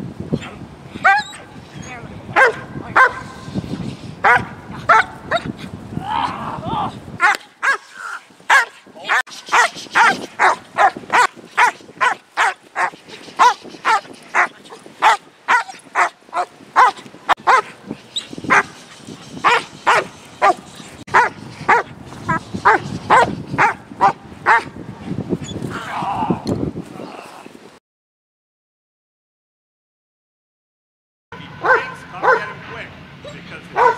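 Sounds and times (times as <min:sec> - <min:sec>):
dog barking aggressively: 0:01.0 - 0:01.5, 0:02.4 - 0:03.4, 0:04.2 - 0:05.5, 0:07.2 - 0:07.9, 0:08.5 - 0:17.8, 0:18.5 - 0:18.8, 0:19.4 - 0:24.8, 0:31.6 - 0:32.6.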